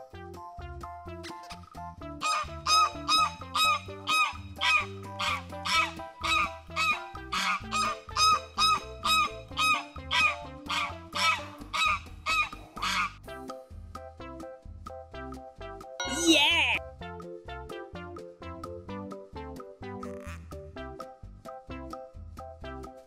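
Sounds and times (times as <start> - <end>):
children's music: 0.0 - 23.0
honking waterfowl calls: 2.2 - 13.2.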